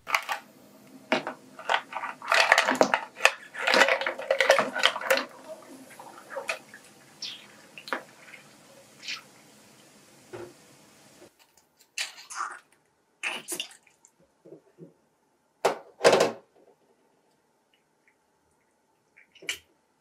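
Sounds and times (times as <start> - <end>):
pan bubbling on the boil: 1.0 - 11.3.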